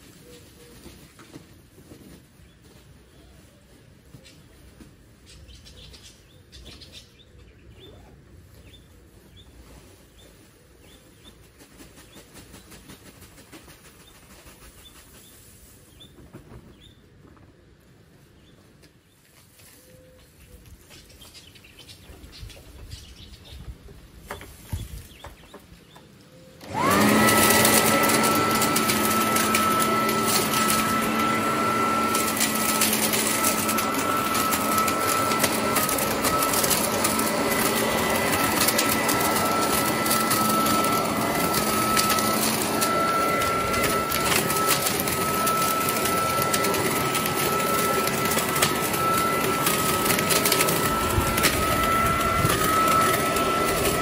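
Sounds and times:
leaf blower whine and air rush: 26.3s - 54.0s.

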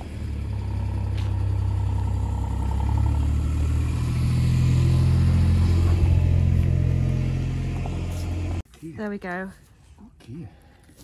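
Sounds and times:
utility vehicle engine humming: 0.0s - 8.6s.

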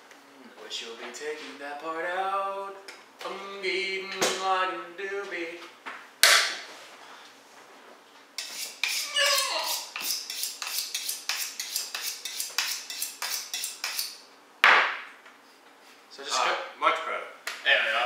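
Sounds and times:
knife scraping on sharpening steel: 8.4s - 14.2s.

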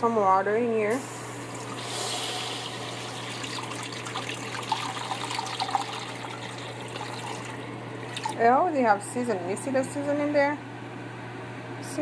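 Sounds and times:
water pouring into metal pot: 1.6s - 8.4s.

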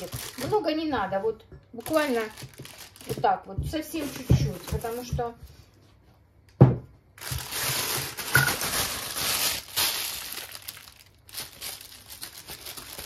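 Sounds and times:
plastic piping bag crinkling: 0.0s - 1.1s, 1.8s - 5.2s, 7.2s - 13.0s
knock: 6.6s - 6.9s.

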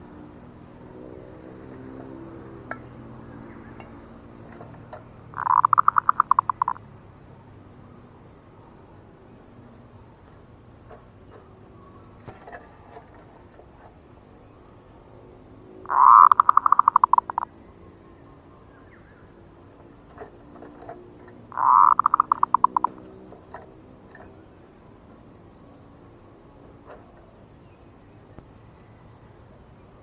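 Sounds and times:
dove cooing: 4.4s - 6.8s, 15.8s - 17.5s, 20.2s - 24.3s.

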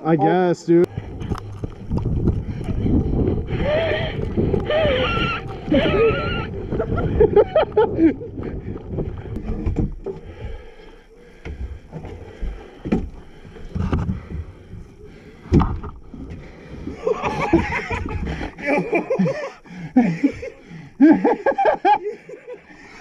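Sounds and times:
gear bumping against boat hull: 11.4s - 18.6s.

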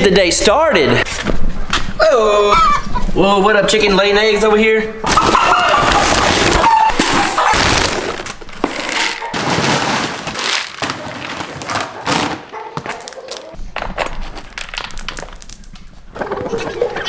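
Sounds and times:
pellets rattling into bucket: 5.1s - 13.4s.

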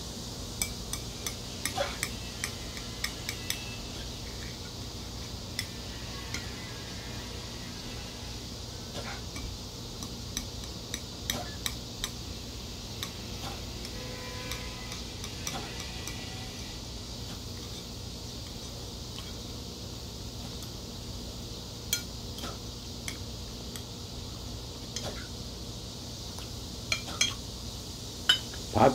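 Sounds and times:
room noise: 0.0s - 28.9s
metal chopsticks scraping a plate: 0.9s - 4.7s, 5.6s - 9.5s, 13.0s - 16.8s.

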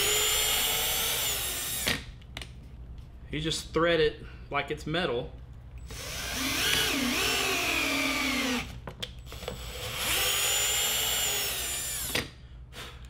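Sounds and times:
cordless drill motor whine: 0.0s - 2.0s, 5.8s - 12.2s.

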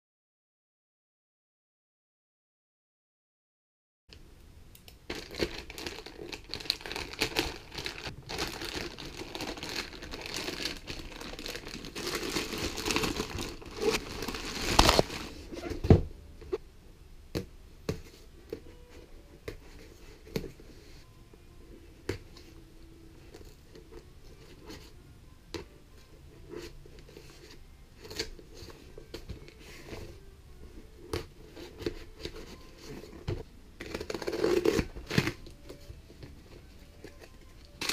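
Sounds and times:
packing tape being cut: 5.1s - 15.4s, 33.8s - 35.5s
plastic mailer crinkling and tearing: 5.1s - 15.5s, 33.8s - 35.8s, 37.0s - 37.9s.

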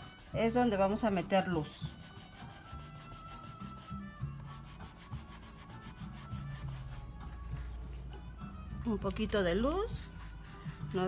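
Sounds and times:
paintbrush scrubbing on wooden board: 0.0s - 7.1s, 10.0s - 11.0s.

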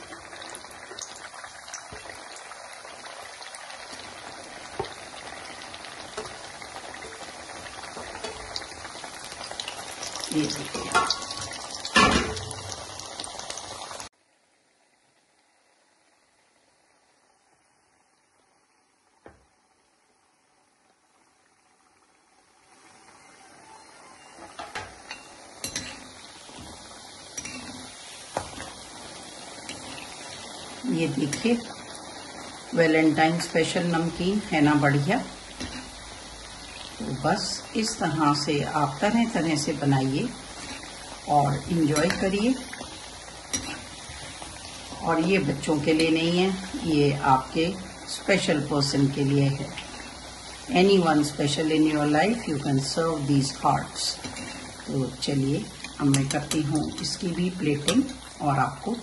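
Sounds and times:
dough deep-frying in oil: 0.0s - 59.0s
metal spoon clinking on pan: 10.7s - 11.4s, 24.5s - 26.0s, 27.3s - 27.7s, 43.5s - 43.8s.

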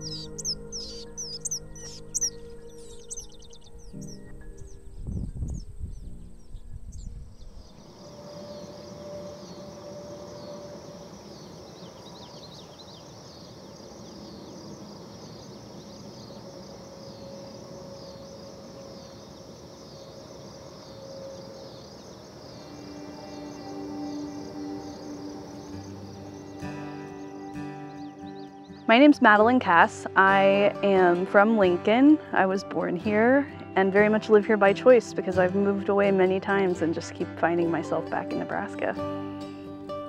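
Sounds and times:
low wind rumble: 0.0s - 26.7s
bird chirps: 0.0s - 29.0s
pulsing insect chorus: 0.0s - 29.0s.

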